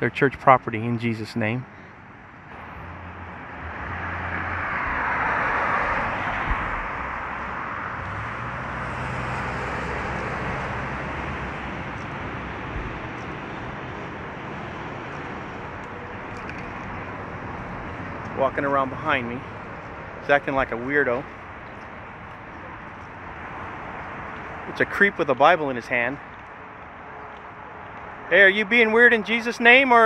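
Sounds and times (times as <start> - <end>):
traffic rumble: 0.0 - 30.0
vehicle passing: 1.9 - 30.0.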